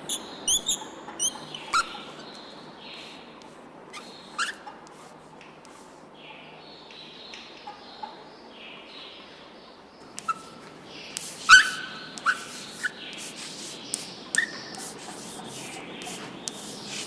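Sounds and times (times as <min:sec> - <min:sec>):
chalk tapping and squeaking: 0:00.1 - 0:02.4, 0:03.0 - 0:06.0, 0:10.1 - 0:17.0
chalk scratching on blackboard: 0:03.9 - 0:06.0, 0:10.2 - 0:17.0.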